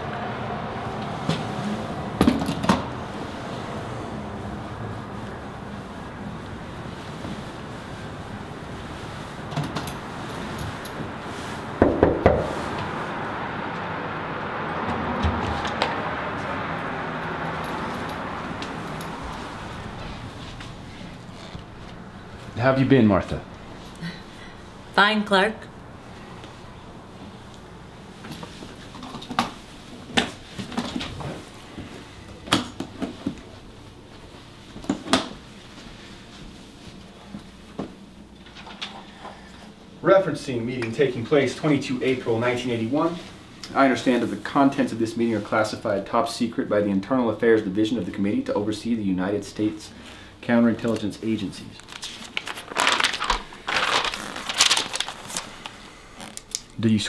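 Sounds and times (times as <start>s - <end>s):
knocks on door: 11.8s - 12.5s.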